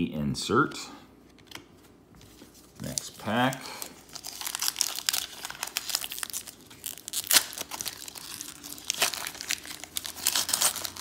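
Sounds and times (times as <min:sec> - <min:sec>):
plastic wrapper crinkling: 0:02.6 - 0:11.0.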